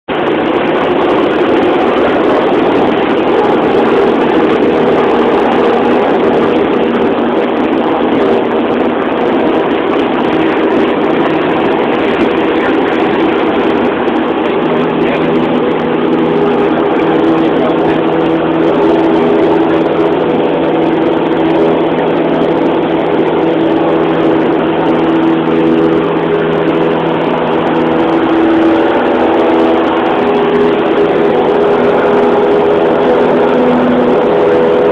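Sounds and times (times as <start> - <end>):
aircraft engine and propeller drone: 0.0 - 34.9.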